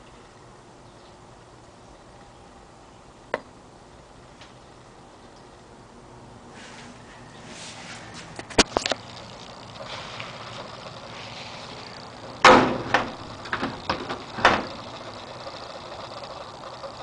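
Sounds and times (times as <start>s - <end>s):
heavy steel door thumping shut: 12.4s - 14.8s.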